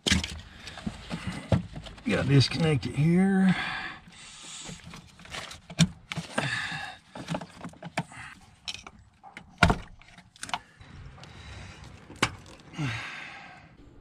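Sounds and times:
hand tools clicking and knocking: 4.8s - 10.7s.

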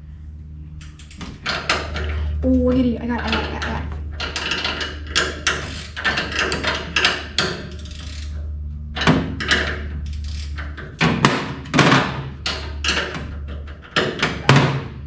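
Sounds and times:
ratchet wrench clicking: 0.8s - 2.2s, 4.2s - 8.4s, 9.0s - 11.0s.

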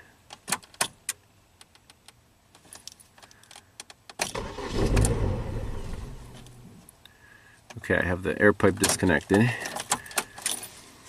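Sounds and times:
loud low rumbling: 4.8s - 6.8s.

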